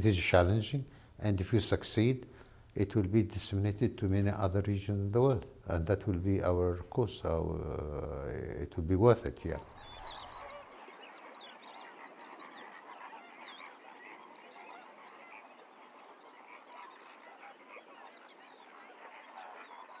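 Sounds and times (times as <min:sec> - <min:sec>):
chorus of birds calling: 0:09.4 - 0:20.0.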